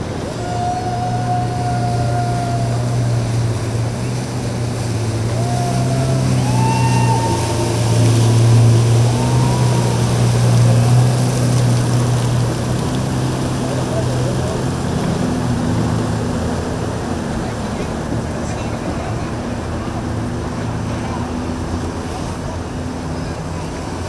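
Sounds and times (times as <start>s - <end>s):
drawn-out high calls: 0.0s - 11.4s
motorboat engines droning: 0.0s - 24.0s
water wash: 0.0s - 24.0s.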